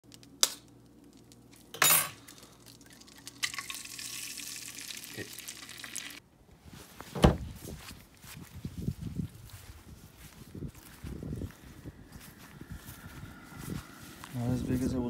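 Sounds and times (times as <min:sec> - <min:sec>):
eggs sizzling in frying pan: 0:00.2 - 0:06.2.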